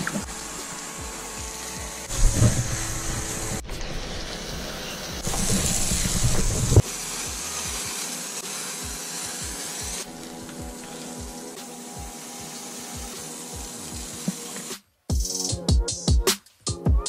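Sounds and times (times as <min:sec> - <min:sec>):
background music with steady beat: 0:00.0 - 0:02.5, 0:06.8 - 0:17.0
foam sprayer hissing: 0:00.0 - 0:14.8.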